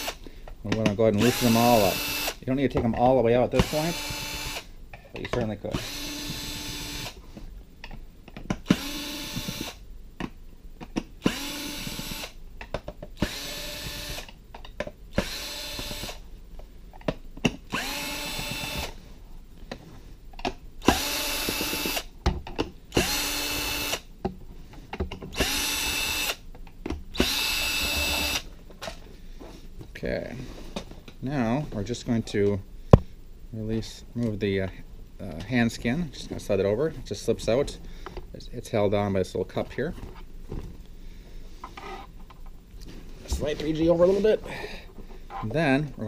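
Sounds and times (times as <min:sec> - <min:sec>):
cordless drill removing screws: 0:03.6 - 0:04.6, 0:08.6 - 0:09.8, 0:15.2 - 0:16.2, 0:17.7 - 0:19.0, 0:20.8 - 0:22.1, 0:25.3 - 0:26.4, 0:27.2 - 0:28.5.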